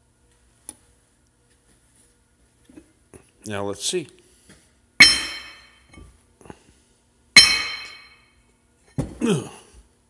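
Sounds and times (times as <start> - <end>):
magnet clanking onto steel plate: 5.0 - 5.7, 7.4 - 8.2.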